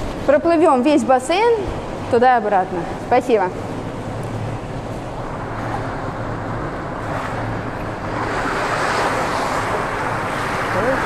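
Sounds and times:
steady low hum: 0.0 - 11.0
swimmer splashing water: 3.6 - 11.0.

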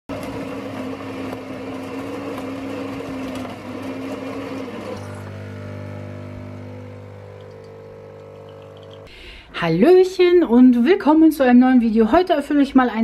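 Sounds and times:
espresso machine pump buzzing: 0.1 - 9.1.

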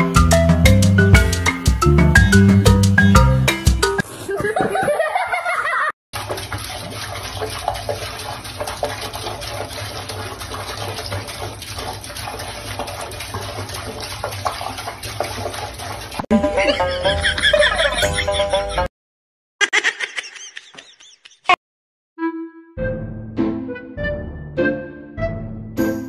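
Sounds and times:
tap water running into sink: 6.2 - 16.3.

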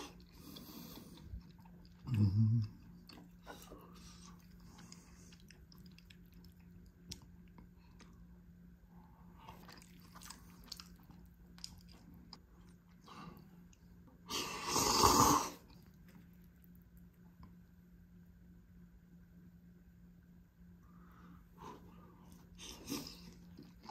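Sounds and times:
loud slurp of noodles: 14.3 - 15.6.

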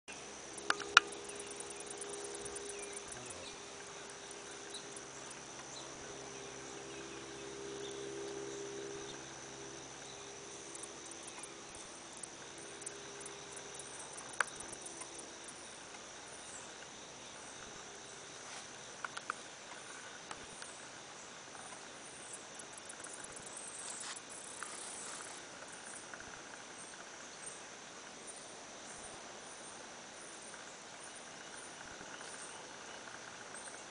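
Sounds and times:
low hum: 0.1 - 23.7
crickets trilling: 0.1 - 33.9.

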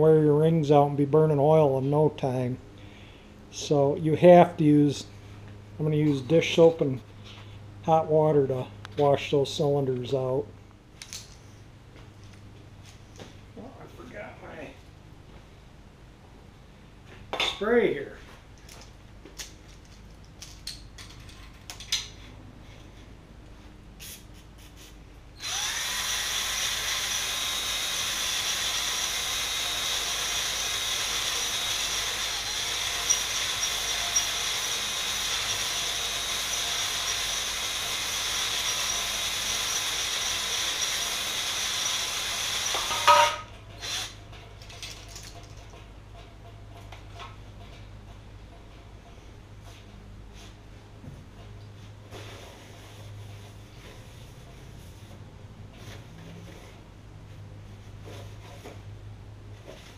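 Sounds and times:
drill spinning hone in cylinder: 25.4 - 44.2.

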